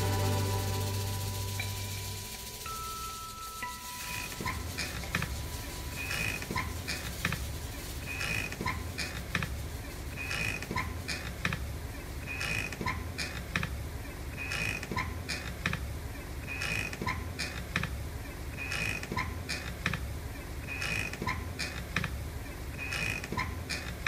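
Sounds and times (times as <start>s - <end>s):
low steady hum: 0.0s - 12.4s
hammock creaking: 0.0s - 17.9s, 18.6s - 20.0s, 20.6s - 22.2s, 22.8s - 24.0s.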